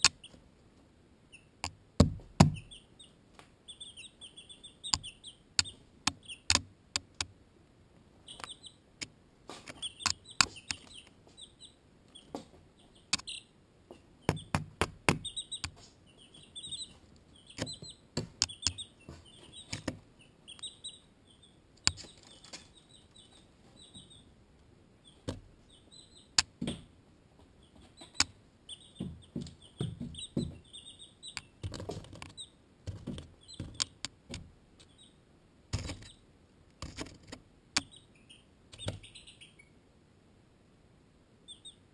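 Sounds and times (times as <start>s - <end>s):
beaks tapping on camera: 0.0s - 0.4s, 1.6s - 2.9s, 3.7s - 7.3s, 8.3s - 11.5s, 12.1s - 21.0s, 21.8s - 24.2s, 27.6s - 35.1s, 35.7s - 39.4s
chicks peeping: 0.0s - 0.6s, 1.2s - 7.3s, 8.0s - 39.8s, 41.4s - 41.9s.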